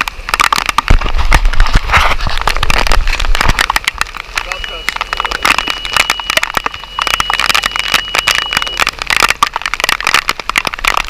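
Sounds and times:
steady high tone: 4.4s - 9.2s.

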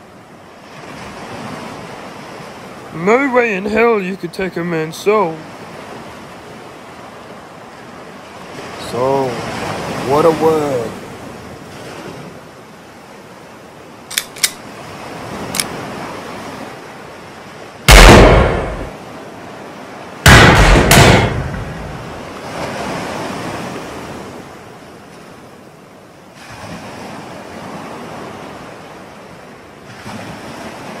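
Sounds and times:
ocean waves: 0.0s - 31.0s
pistol shots: 17.9s - 19.0s, 20.3s - 22.0s.

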